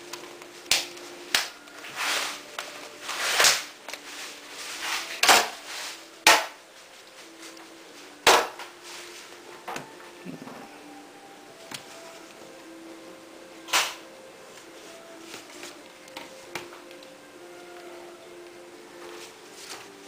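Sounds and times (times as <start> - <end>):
plastic snapping: 0.1 - 1.6, 6.2 - 6.6, 13.7 - 14.1.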